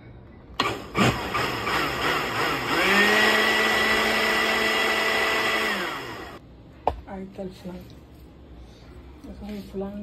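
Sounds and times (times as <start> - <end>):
blender motor whining: 0.6 - 6.4.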